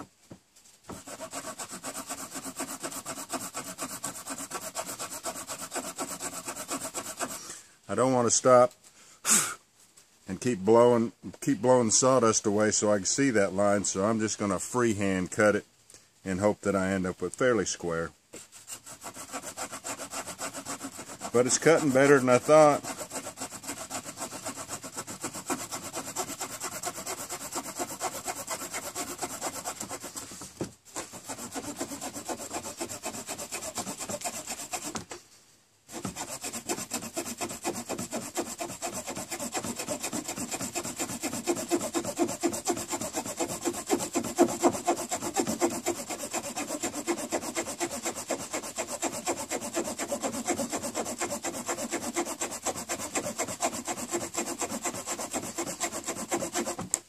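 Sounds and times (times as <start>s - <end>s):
small saw cutting wooden board: 0.9s - 7.6s, 18.4s - 35.2s, 35.9s - 57.0s.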